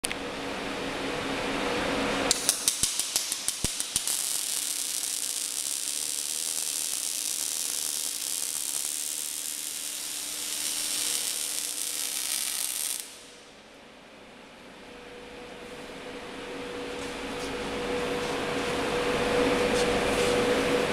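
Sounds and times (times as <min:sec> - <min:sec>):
welding arc crackling: 0:02.3 - 0:13.5
welding arc hiss: 0:02.3 - 0:13.5.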